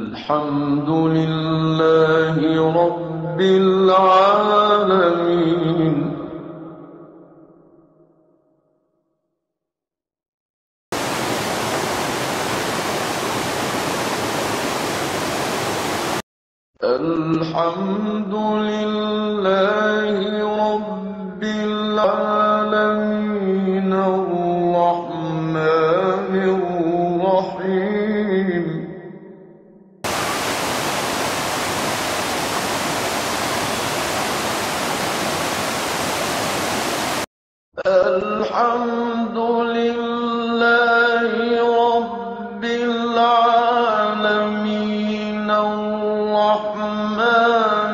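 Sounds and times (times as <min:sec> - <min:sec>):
waterfall roar: 0:11.0 - 0:16.2, 0:30.1 - 0:37.2.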